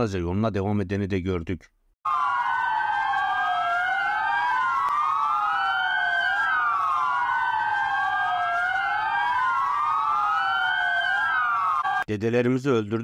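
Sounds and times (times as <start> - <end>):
sirens wailing: 2.0 - 12.1.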